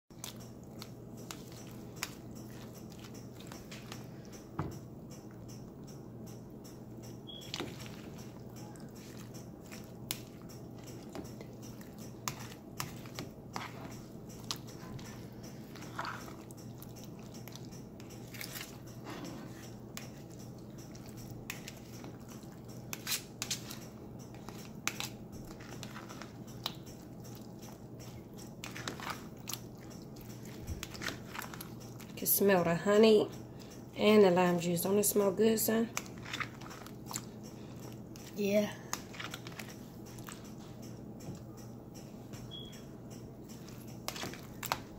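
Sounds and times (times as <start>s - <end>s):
steady low hum: 0.1s - 44.9s
wet squelches and crunches: 36.0s - 37.3s.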